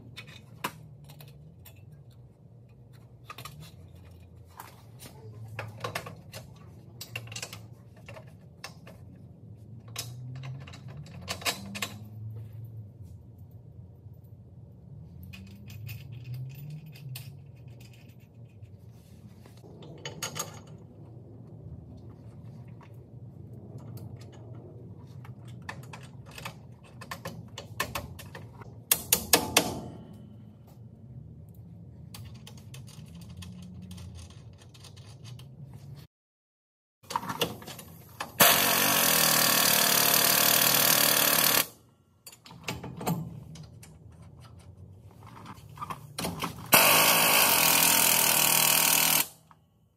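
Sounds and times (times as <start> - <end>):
low shop hum: 0.0 - 36.1, 37.0 - 49.9
steel parts and tools clinking: 15.2 - 18.8.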